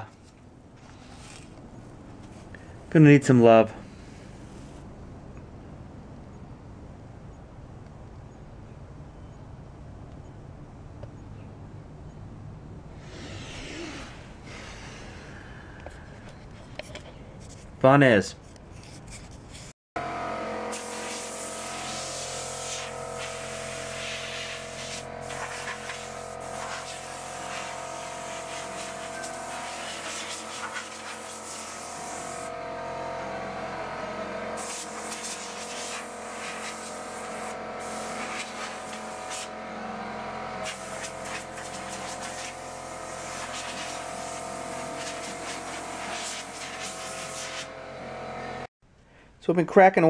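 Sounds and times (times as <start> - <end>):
mechanical hum: 0.0 - 49.5
hiss: 13.0 - 15.6, 20.7 - 32.5, 34.6 - 39.5, 40.6 - 47.7.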